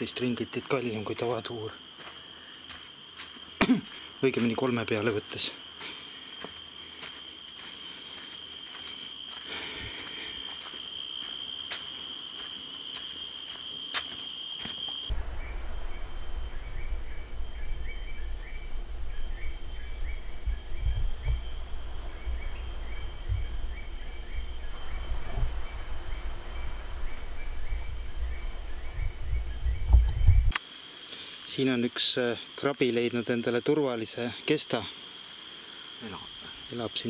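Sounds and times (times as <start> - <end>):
insect chorus drone: 0.0 - 37.0
low rumble on microphone: 15.1 - 30.5.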